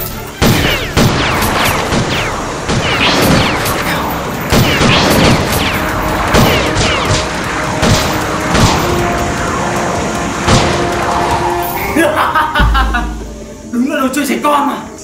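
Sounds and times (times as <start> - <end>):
whooshing zaps: 0.0 - 12.4
impact hits: 0.4 - 11.7.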